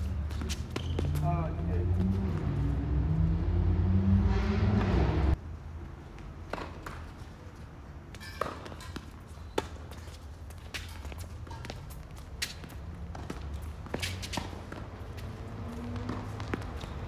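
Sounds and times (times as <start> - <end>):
tennis ball bouncing: 0.3 - 1.2, 6.5 - 7.1, 8.1 - 10.1, 10.7 - 17.0.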